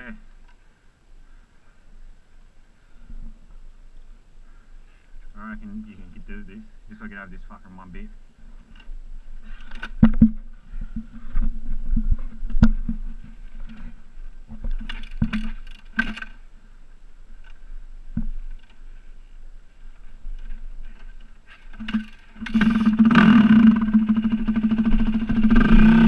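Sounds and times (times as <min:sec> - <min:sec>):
dirt bike engine at low revs: 0:08.4 - 0:26.0
knocks and thumps on ground: 0:09.8 - 0:16.4.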